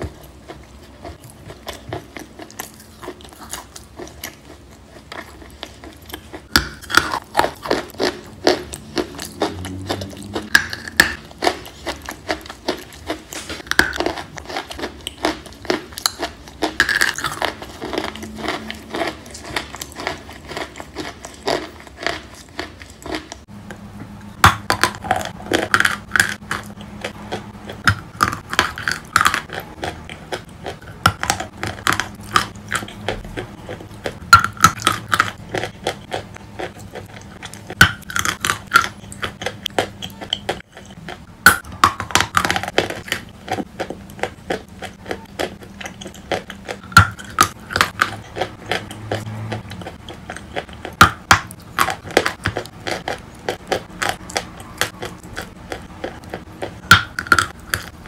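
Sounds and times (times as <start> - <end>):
chalk crunching being chewed: 0.0 - 23.5, 24.4 - 58.0.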